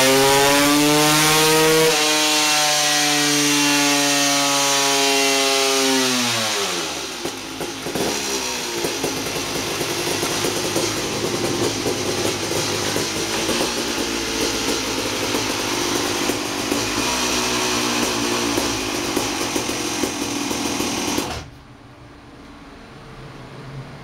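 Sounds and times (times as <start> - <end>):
two-stroke engine revving: 0.0 - 21.6
fan hum: 6.8 - 24.0.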